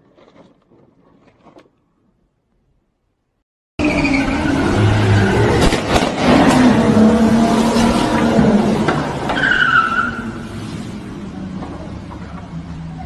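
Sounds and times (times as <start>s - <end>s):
car engine revving: 3.8s - 13.0s.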